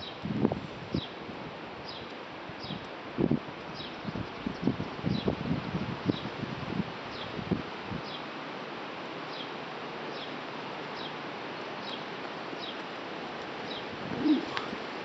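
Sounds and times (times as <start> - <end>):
wind: 0.0 - 15.0
leaves rustling: 5.3 - 15.0
bird chirping: 13.7 - 14.7.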